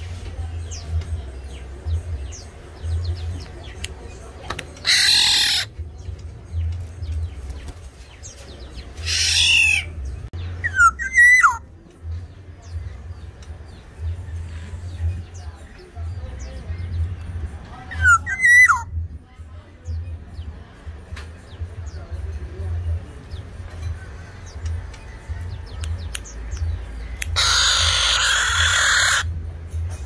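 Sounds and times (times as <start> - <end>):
bird harsh nasal squawks: 4.8 - 5.7, 27.4 - 29.3.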